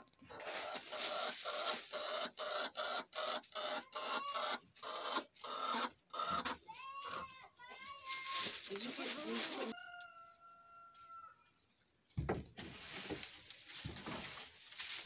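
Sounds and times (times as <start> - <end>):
rustling of dry leaves: 0.0 - 2.3, 6.7 - 10.0, 12.6 - 15.0
hens clucking: 0.0 - 11.2.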